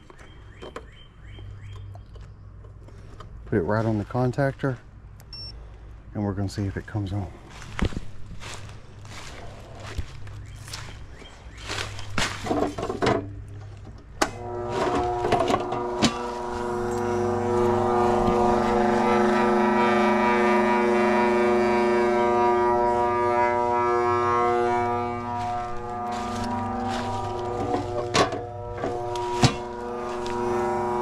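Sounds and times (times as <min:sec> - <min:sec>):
unit droning hum: 0:03.4 - 0:31.0
footsteps: 0:06.7 - 0:12.9, 0:14.5 - 0:19.6, 0:23.7 - 0:31.0.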